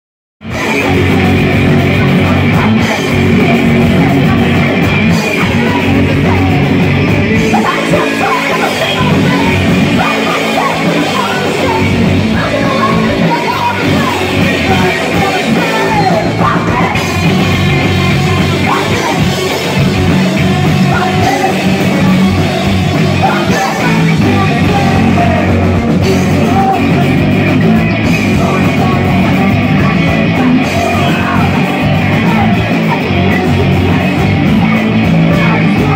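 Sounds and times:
drum kit: 0.4s - 35.9s
electric guitars: 0.4s - 35.9s
woman singing and shouting: 0.5s - 19.9s, 20.5s - 25.5s.

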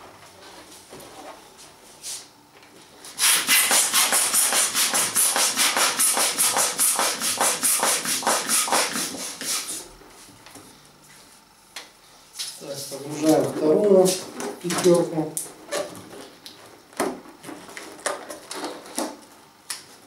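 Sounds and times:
hand balloon pump strokes: 3.2s - 9.8s.

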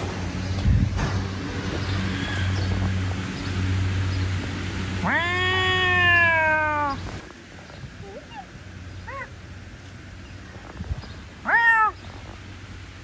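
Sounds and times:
cat meowing: 5.0s - 7.0s, 11.4s - 12.0s.

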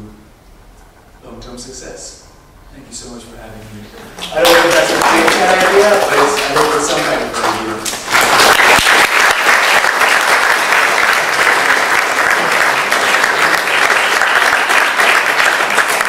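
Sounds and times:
audience applauding: 4.2s - 16.0s.

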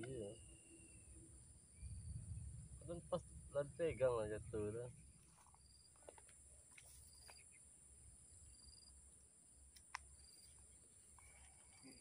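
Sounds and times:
faint high chirps: 0.0s - 2.6s
faint ticks: 9.7s - 12.0s.

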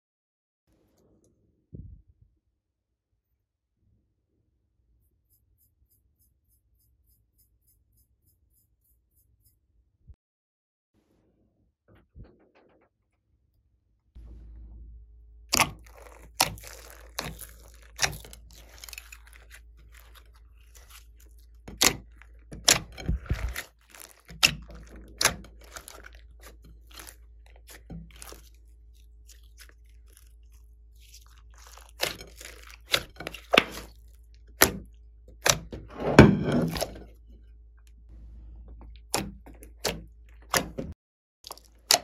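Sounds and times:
wet slime squelch: 15.4s - 35.8s, 38.6s - 42.0s
slime popping and crackling: 15.5s - 34.8s.

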